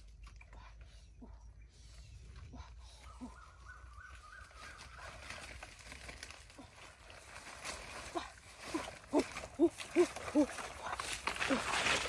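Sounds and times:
leaves and branches rustling: 2.0s - 12.0s.

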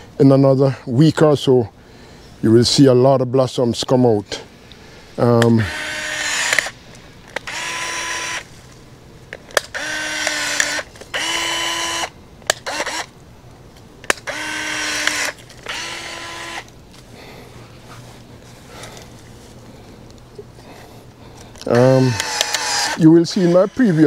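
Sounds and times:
cordless power tool cutting limbs: 5.3s - 8.5s, 9.5s - 13.2s, 14.0s - 16.8s, 21.5s - 24.0s
sharp clicks: 6.2s - 7.7s, 9.3s - 11.4s, 12.4s - 13.1s, 21.5s - 23.0s.

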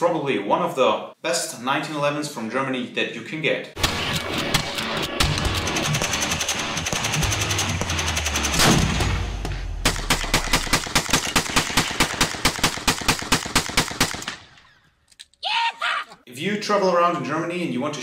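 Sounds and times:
rapid semi-automatic gunshots: 3.8s - 14.5s
gunshots: 3.8s - 14.6s.

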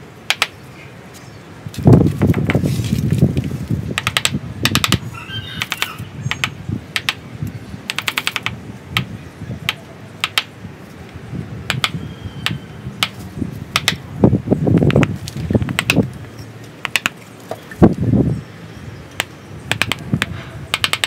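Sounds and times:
chisel chipping wood: 4.0s - 5.0s, 7.9s - 9.1s, 9.7s - 10.5s, 11.7s - 14.0s, 16.8s - 17.2s, 19.2s - 21.0s.

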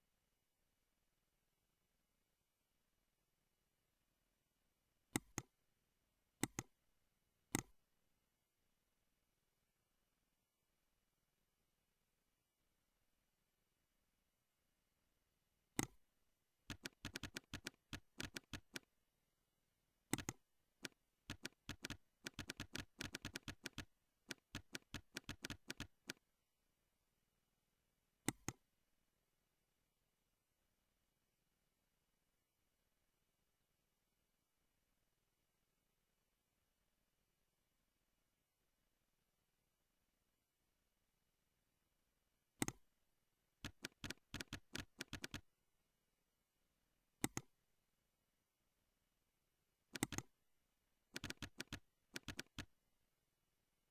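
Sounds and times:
mouse click: 5.1s - 5.6s, 6.4s - 6.8s, 7.5s - 7.8s, 15.8s - 16.0s, 16.7s - 18.9s, 20.1s - 26.2s, 28.2s - 28.7s, 42.6s - 42.9s, 43.6s - 45.4s, 47.2s - 47.5s, 49.9s - 50.3s, 51.2s - 52.7s
computer keyboard typing: 16.7s - 18.9s, 20.1s - 26.2s, 43.6s - 45.5s, 49.9s - 50.3s, 51.2s - 52.7s.

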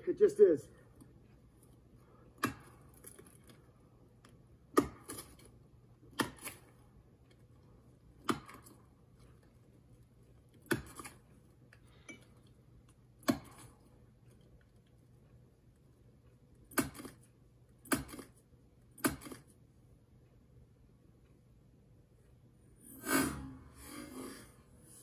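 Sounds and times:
axe chopping into tree trunk: 4.7s - 5.3s, 6.2s - 6.6s, 10.7s - 11.1s, 13.2s - 13.6s.

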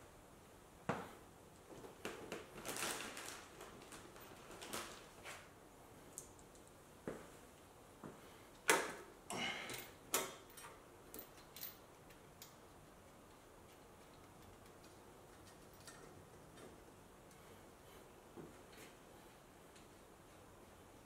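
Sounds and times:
clicks and knocks handling parts: 9.7s - 17.4s.

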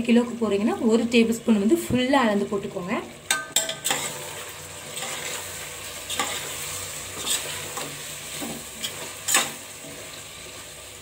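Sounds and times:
food frying sizzle: 0.0s - 11.0s
spoon scraping a metal pan: 3.3s - 10.2s.

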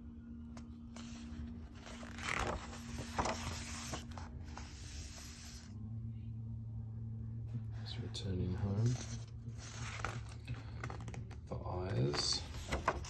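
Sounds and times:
book pages being turned: 0.5s - 5.7s, 8.6s - 13.0s.

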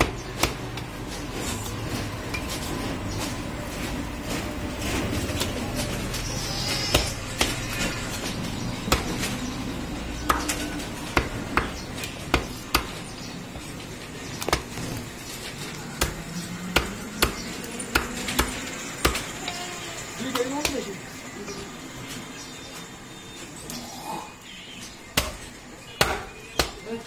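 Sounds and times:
cleaver chopping meat on wood: 0.0s - 1.0s, 6.8s - 8.1s, 8.8s - 9.4s, 10.2s - 13.1s, 15.8s - 19.4s, 25.1s - 26.9s.

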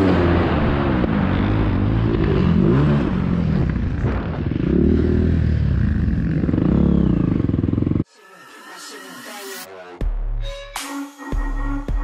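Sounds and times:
motorcycle engine revving: 0.0s - 8.0s.

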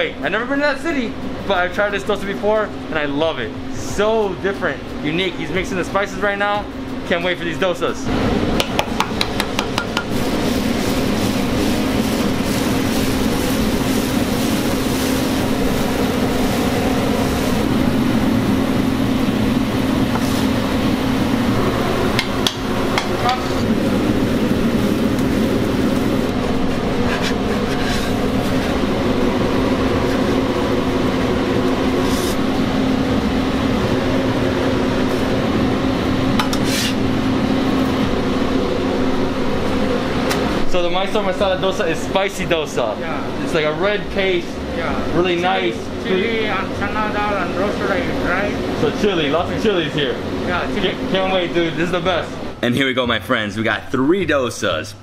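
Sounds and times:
ventilation fan drone: 0.0s - 55.0s
metal utensils scraping griddle: 26.6s - 28.9s, 36.5s - 37.0s.

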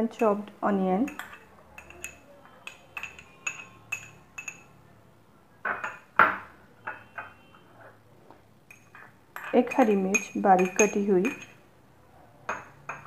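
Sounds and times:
spoon scraping bowl: 1.0s - 4.7s, 8.7s - 11.6s
spoon clinking against glass bowl: 1.0s - 4.9s, 5.6s - 7.6s, 8.7s - 11.6s, 12.5s - 13.0s.

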